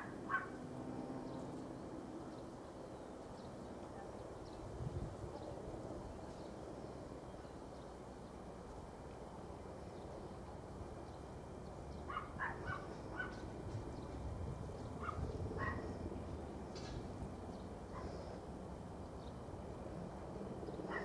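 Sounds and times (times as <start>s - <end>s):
distant dog barking: 0.0s - 0.6s, 3.9s - 4.2s, 12.1s - 13.5s, 15.0s - 16.0s, 17.9s - 18.3s.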